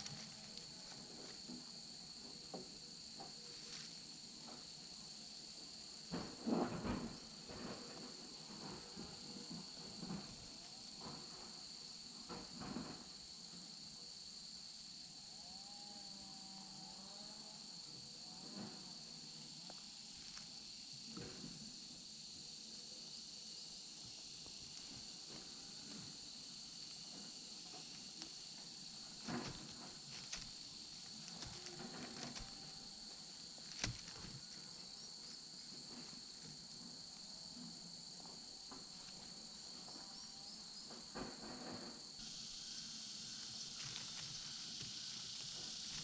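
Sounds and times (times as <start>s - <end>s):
sticks and leaves rustling: 0.0s - 1.4s, 27.9s - 34.6s, 43.4s - 46.0s
high-pitched insect chorus: 0.0s - 46.0s.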